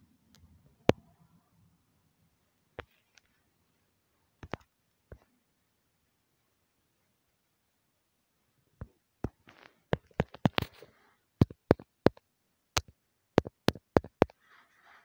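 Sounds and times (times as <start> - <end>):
sharp clicks and knocks: 4.4 - 5.3, 8.8 - 14.4
faint rustle: 14.4 - 15.0.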